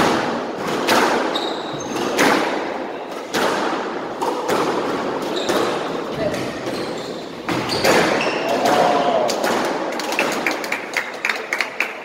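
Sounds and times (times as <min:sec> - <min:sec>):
racket striking squash ball: 0:00.0 - 0:10.4
sneaker squeaks on hardwood: 0:01.2 - 0:02.3, 0:05.2 - 0:08.5.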